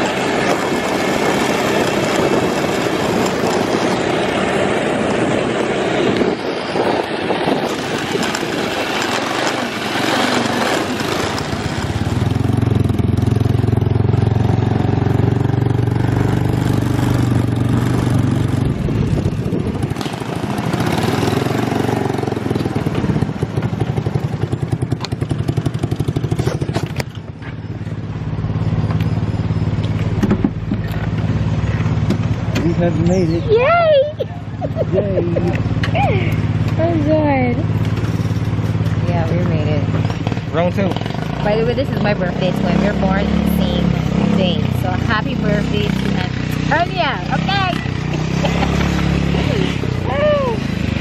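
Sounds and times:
wind rushing: 0.0 - 12.9
buggy engine running: 0.0 - 51.0.

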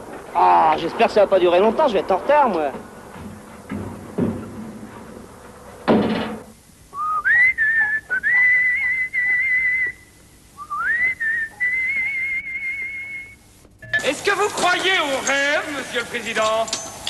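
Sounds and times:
person whistling a tune: 6.9 - 10.0, 10.6 - 13.4.

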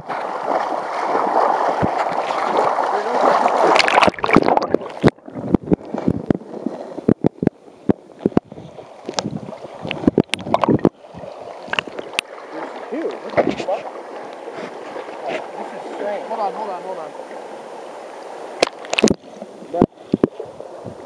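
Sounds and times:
river water rushing: 0.0 - 5.6, 8.8 - 19.8
muffled water underwater: 0.0 - 15.5, 18.1 - 21.0
underwater clicks and knocks: 3.8 - 6.4, 7.0 - 8.5, 9.1 - 11.0, 11.6 - 12.3, 18.6 - 20.4.

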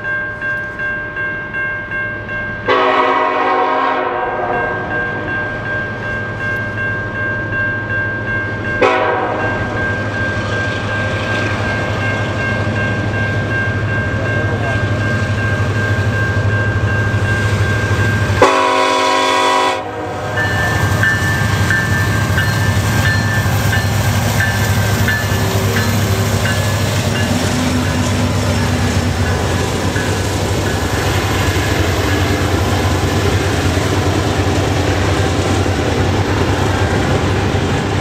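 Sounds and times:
train air horn blasts: 2.7 - 4.9, 8.8 - 9.5, 18.3 - 20.4
diesel locomotive rumble: 8.2 - 38.0.

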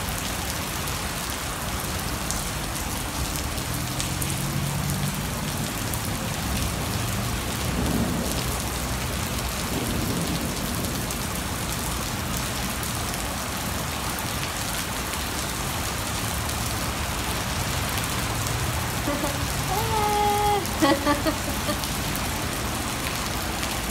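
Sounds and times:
heavy rain on paving: 0.0 - 23.9
low rumble of thunder: 7.6 - 12.5.

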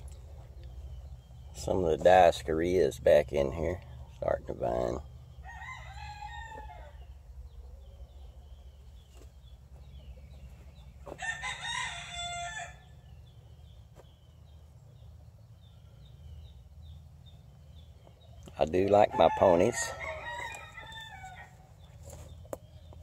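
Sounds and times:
rooster crowing: 5.4 - 7.1, 11.2 - 12.9, 19.1 - 21.6.

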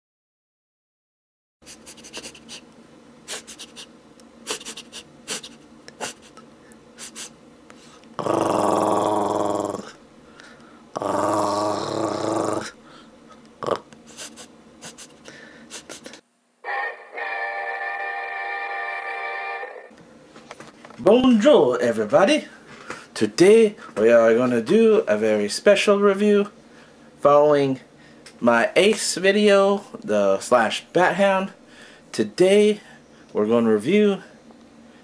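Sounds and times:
dog growling: 8.2 - 10.0, 10.9 - 12.8, 13.6 - 14.0.

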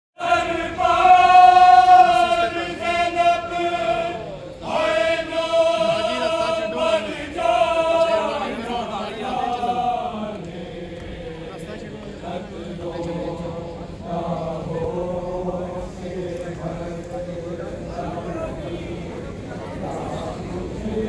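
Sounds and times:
men chanting in unison: 0.2 - 21.0.

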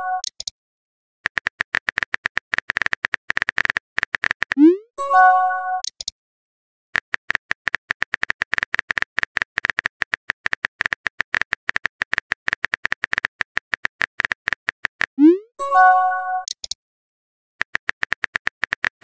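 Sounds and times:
phone keyboard typing clicks: 0.1 - 0.5, 1.3 - 4.7, 5.8 - 6.1, 7.0 - 15.2, 16.4 - 16.8, 17.6 - 19.0.

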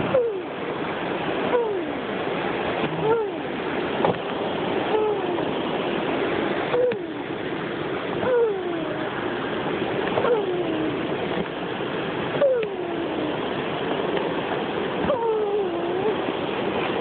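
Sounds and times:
steady rushing noise: 0.0 - 17.0
boy making falling sound effect: 2.9 - 3.5, 4.9 - 5.5, 6.8 - 7.2, 8.2 - 9.1, 10.2 - 11.0, 12.4 - 13.4, 15.0 - 16.2.

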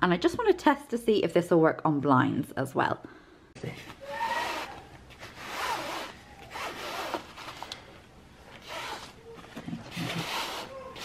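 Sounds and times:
glove rubbing across blind slats: 3.8 - 7.8, 8.5 - 11.0.

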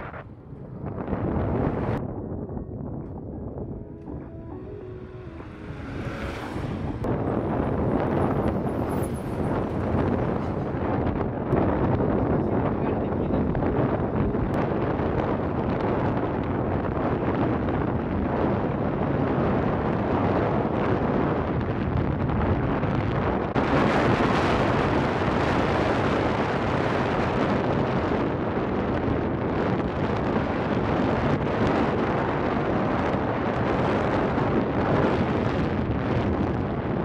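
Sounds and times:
motorcycle engine hum: 0.0 - 18.6
wind buffeting microphone: 0.0 - 37.0.

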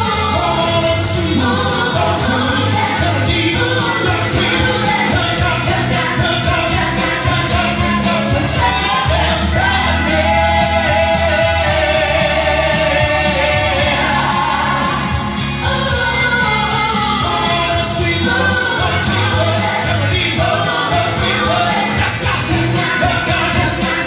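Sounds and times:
amplified backing music: 0.0 - 24.0
singers performing soul-pop song: 0.0 - 24.0.

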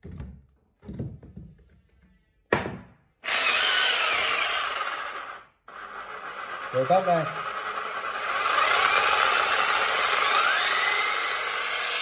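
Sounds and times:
power drill motor running: 3.2 - 12.0.

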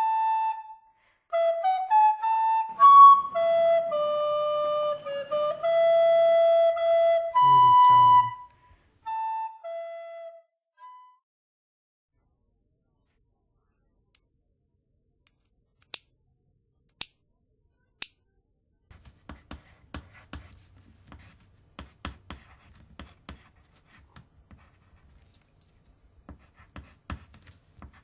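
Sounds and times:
box cutter blade clicks: 16.9 - 17.2
pencil scratching on paper: 18.9 - 25.5, 26.3 - 28.0.

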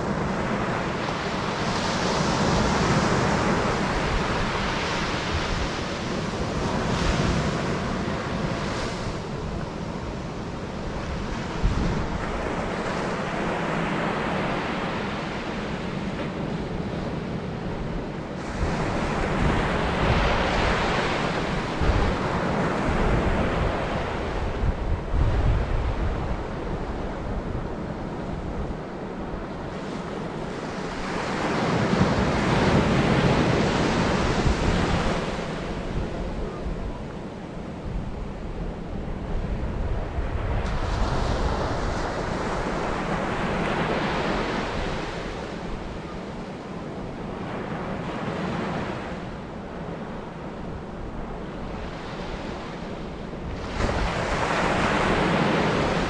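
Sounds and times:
wind buffeting microphone: 0.0 - 56.0
surf breaking on beach: 29.7 - 49.3, 51.0 - 56.0.

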